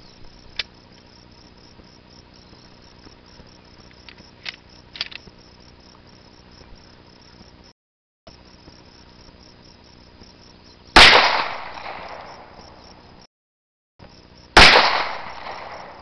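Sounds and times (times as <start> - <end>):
pistol shots: 11.0 - 12.4, 14.6 - 16.0.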